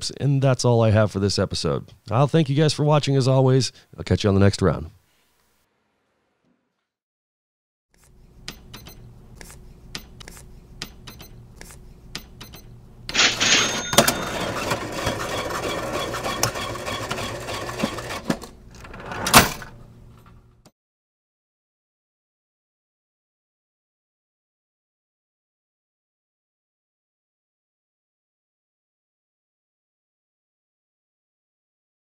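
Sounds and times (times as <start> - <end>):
cash register key clicks: 12.5 - 18.5
cash register clatter and ring: 13.1 - 19.8.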